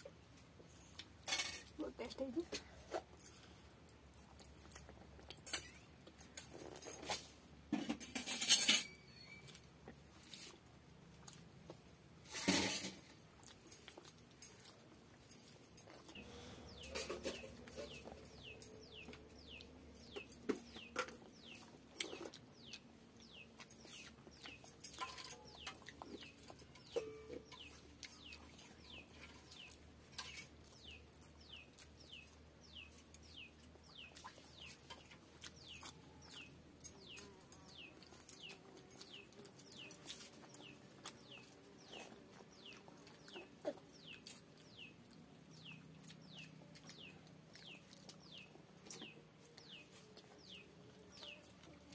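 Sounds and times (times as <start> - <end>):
wet chewing sounds: 0.0 - 7.4, 9.3 - 12.3, 13.0 - 51.9
bird chirping: 8.7 - 9.6, 16.1 - 51.8.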